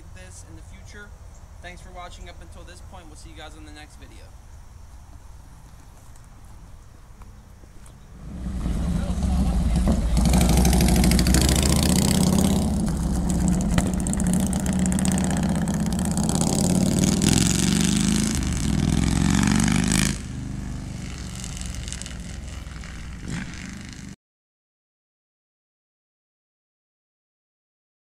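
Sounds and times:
motorcycle accelerating away: 8.2 - 24.2.

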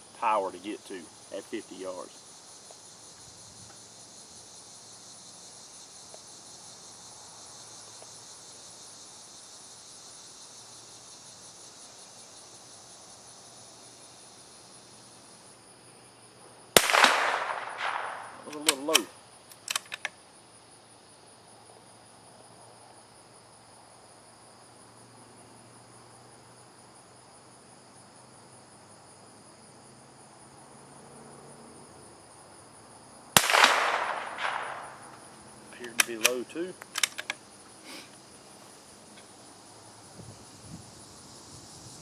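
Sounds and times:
rifle shots: 16.8 - 19.1, 33.4 - 35.1
rifle bolt clicking: 17.8 - 20.1, 35.9 - 37.4.

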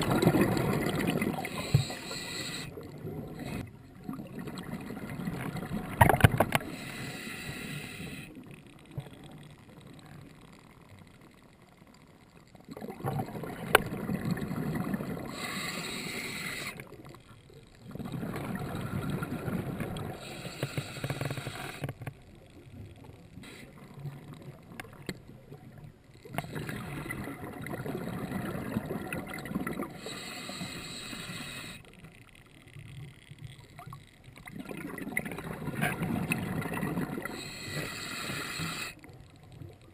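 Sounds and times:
exhaled bubbles underwater: 0.0 - 6.8, 12.7 - 15.6, 17.8 - 20.8, 23.8 - 30.7, 33.6 - 38.0.

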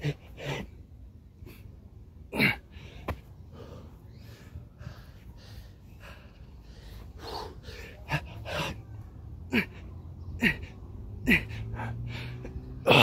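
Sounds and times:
man grunting: 2.3 - 2.6, 10.4 - 12.0, 12.8 - 13.0
man panting hard: 3.5 - 12.7.

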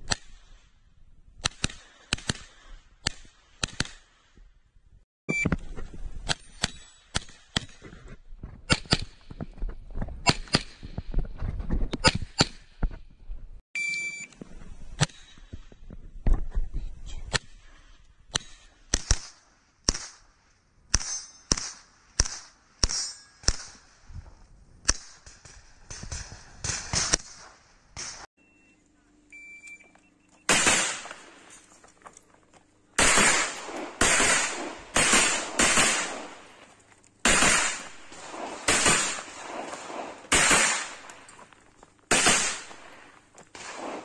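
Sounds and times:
rapid gunfire: 30.5 - 31.4, 33.0 - 36.6, 37.2 - 41.0, 42.1 - 43.0.

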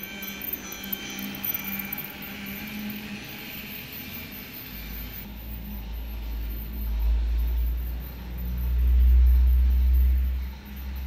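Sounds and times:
toy train rumbling on plastic track: 0.0 - 3.3.

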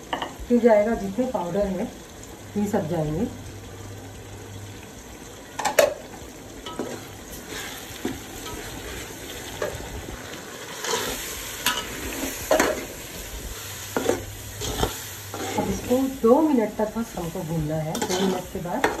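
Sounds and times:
food sizzling in oil: 0.0 - 19.0
metal ladle scraping pot: 10.7 - 12.9, 13.9 - 15.9, 17.9 - 19.0.

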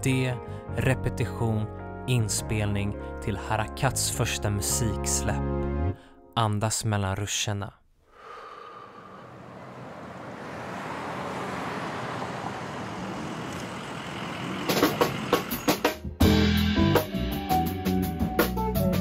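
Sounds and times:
street traffic noise: 8.1 - 16.1.

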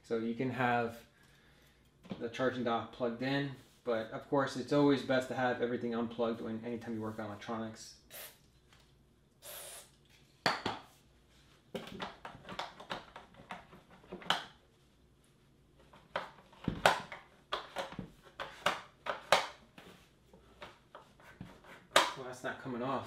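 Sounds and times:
aerosol spray hiss: 8.1 - 8.4, 9.4 - 9.9.

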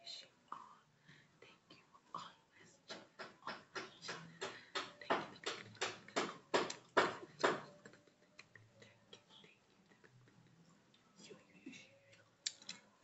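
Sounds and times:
soft sharp clicks: 12.1 - 12.8.

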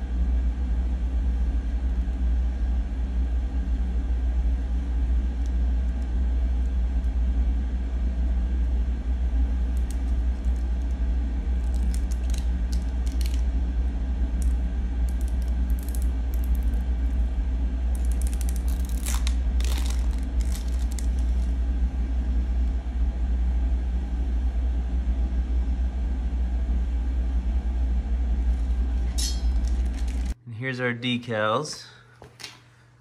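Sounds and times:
steady low rumble: 0.0 - 30.6
vinyl decal crinkling: 11.5 - 13.5, 17.9 - 21.6, 28.6 - 30.4.

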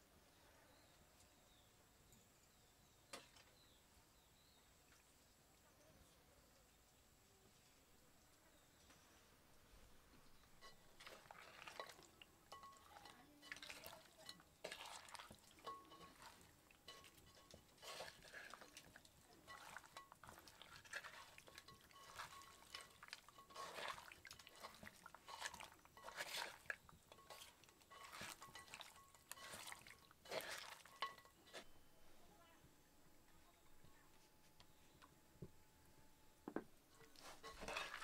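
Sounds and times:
hands kneading fish wet squelches: 11.0 - 31.2.

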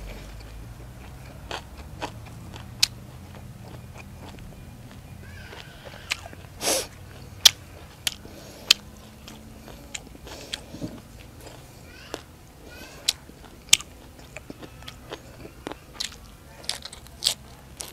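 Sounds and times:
man chewing with mouth full: 0.0 - 17.9
breathy hiss: 5.7 - 7.0.

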